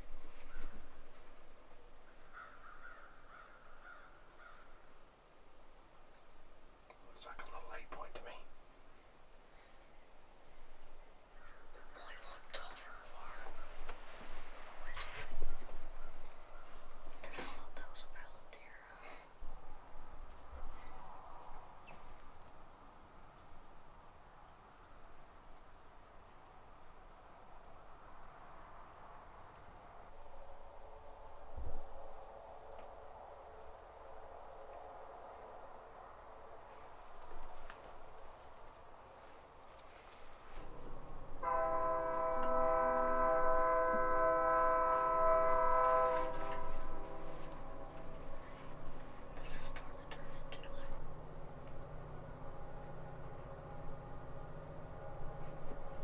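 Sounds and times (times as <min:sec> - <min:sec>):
insect chirping: 0:00.0 - 0:43.8, 0:44.6 - 0:56.0
low hiss: 0:00.0 - 0:56.0
train horn blast: 0:41.4 - 0:48.9.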